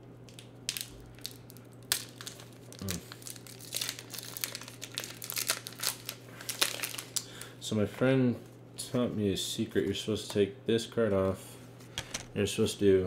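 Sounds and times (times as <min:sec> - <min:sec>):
plastic foil wrapper tearing and crinkling: 0:00.3 - 0:07.5.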